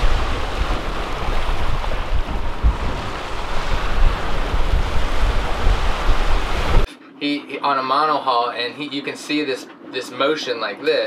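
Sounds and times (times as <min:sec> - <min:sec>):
choppy sea waves splashing: 0:00.0 - 0:06.9
wind buffeting microphone: 0:00.0 - 0:06.9.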